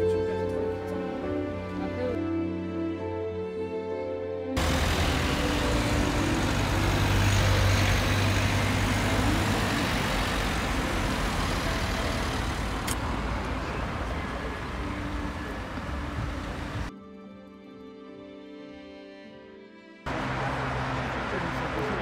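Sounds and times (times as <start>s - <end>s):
vehicle passing close by: 4.6s - 16.9s.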